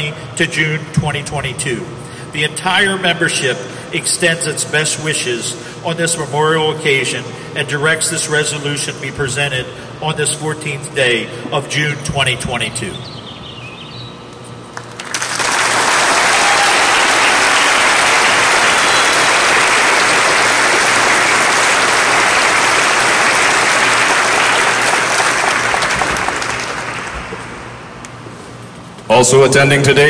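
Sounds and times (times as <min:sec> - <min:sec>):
audience applauding: 0:14.7 - 0:27.9.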